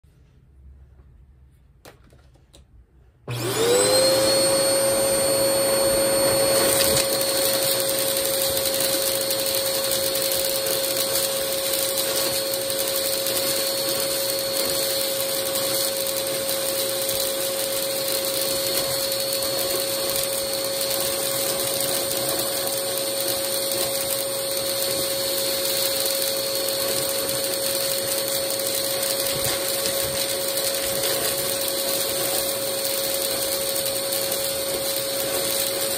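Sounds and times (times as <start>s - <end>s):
vacuum cleaner motor running: 3.3s - 35.9s.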